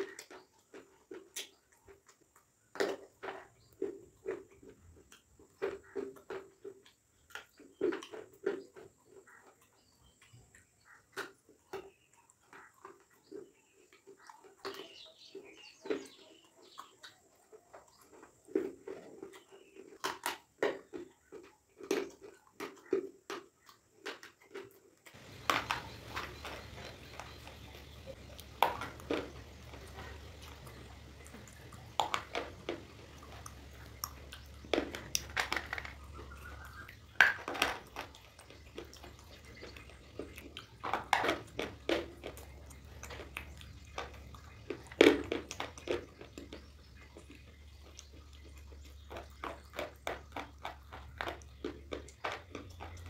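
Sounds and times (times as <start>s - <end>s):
stone being bitten and chewed: 21.4s - 53.0s
steady low hum: 25.2s - 37.2s.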